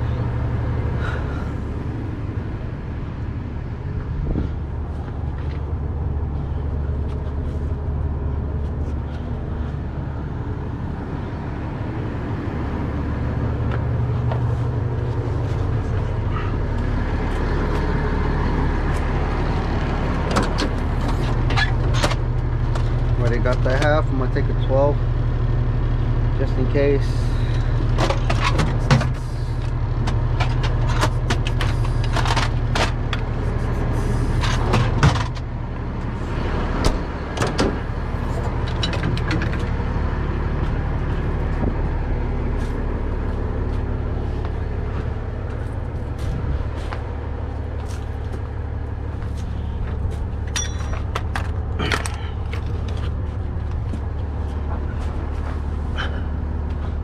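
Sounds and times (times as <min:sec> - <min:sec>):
heavy truck engine idling: 0:00.0 - 0:57.0
metal tools clinking in drawer: 0:50.5 - 0:51.3.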